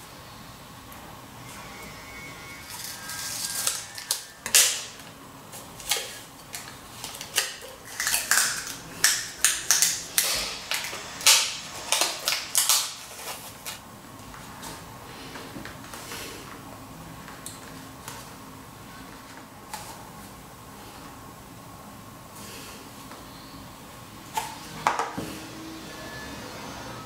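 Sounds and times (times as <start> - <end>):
adhesive tape ripping off roll: 2.7 - 5.0, 5.8 - 13.8.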